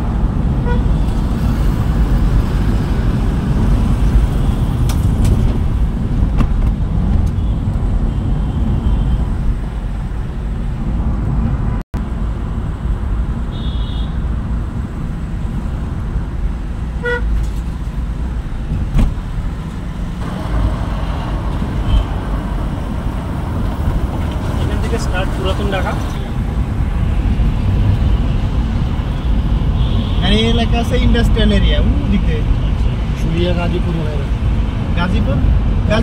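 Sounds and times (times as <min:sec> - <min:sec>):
engine and road rumble: 0:00.0 - 0:36.0
car horn toots: 0:17.0 - 0:17.3.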